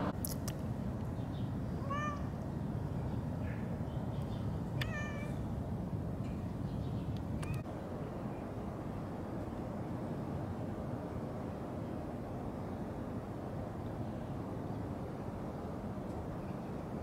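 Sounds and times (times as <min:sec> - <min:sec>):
cat meowing: 0:01.8 - 0:02.3, 0:04.8 - 0:05.4.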